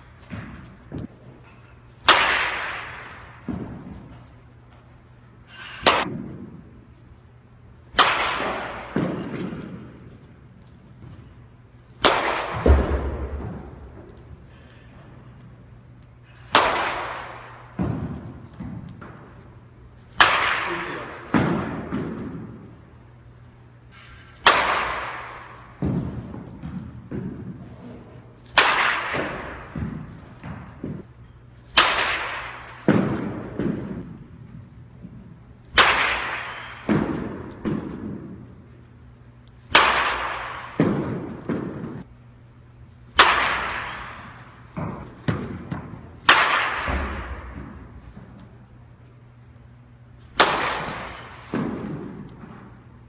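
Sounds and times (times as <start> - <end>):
ball thumping net and floor: 0.0 - 7.0, 7.8 - 42.3, 43.1 - 53.0
bat hitting baseball: 0.2 - 4.2, 5.6 - 6.7, 7.9 - 10.3, 12.0 - 14.2, 16.3 - 22.8, 23.9 - 27.6, 28.4 - 31.0, 31.7 - 38.6, 39.7 - 42.1, 43.1 - 48.5, 50.2 - 52.8.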